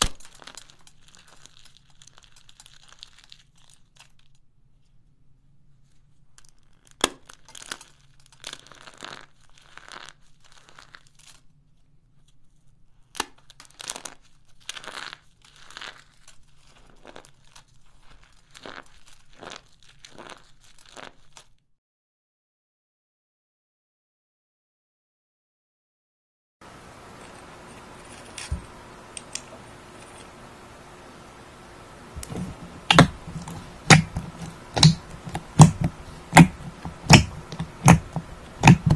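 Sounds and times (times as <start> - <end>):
powder chunks crunching in hands: 0.0 - 4.4, 6.4 - 11.6, 13.0 - 21.6.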